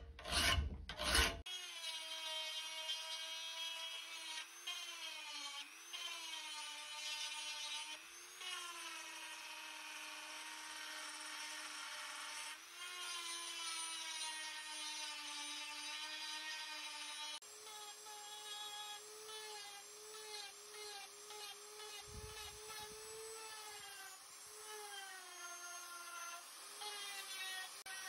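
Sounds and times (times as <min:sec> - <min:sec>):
bit grinding steel: 0:00.0 - 0:01.4
rotary tool whining: 0:00.0 - 0:28.0.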